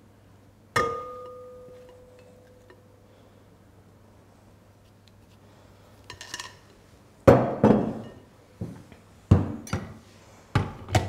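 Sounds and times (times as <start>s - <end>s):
glass bowls clinking: 0.8s - 2.9s, 7.7s - 8.3s
glass bowls knocking on worktop: 7.3s - 8.2s.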